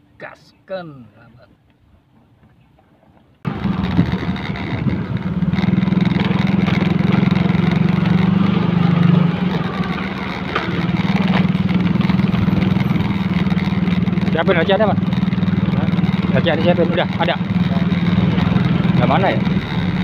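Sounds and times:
road noise: 0:00.9 - 0:20.0
rushing wind: 0:03.4 - 0:16.4
motorcycle engine running: 0:03.4 - 0:20.0.

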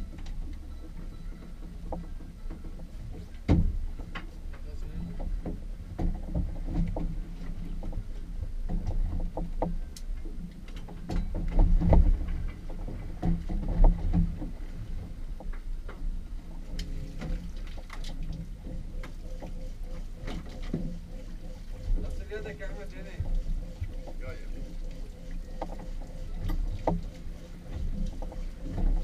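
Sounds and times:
water and wind against hull: 0:00.0 - 0:29.0.

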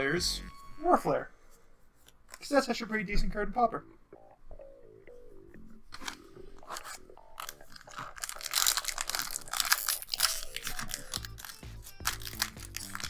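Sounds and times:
foil wrapper crinkling and tearing: 0:06.0 - 0:13.0.

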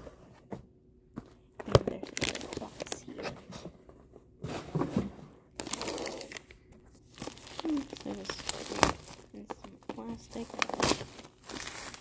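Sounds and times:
plastic packaging crinkling: 0:01.7 - 0:03.1, 0:05.5 - 0:12.0.

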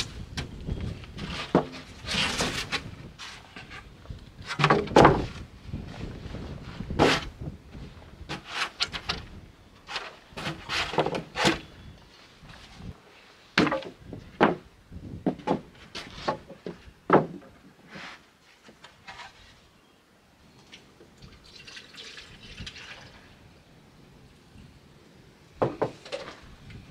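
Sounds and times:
wooden planks knocking: 0:01.2 - 0:01.8, 0:04.4 - 0:05.4, 0:13.6 - 0:17.7, 0:25.6 - 0:26.4.

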